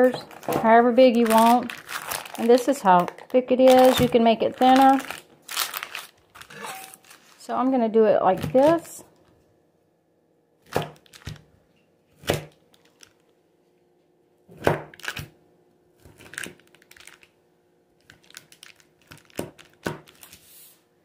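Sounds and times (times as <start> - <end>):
parchment paper crinkling: 0.0 - 7.5, 11.0 - 11.5, 12.5 - 13.4, 16.0 - 17.4, 18.0 - 20.8.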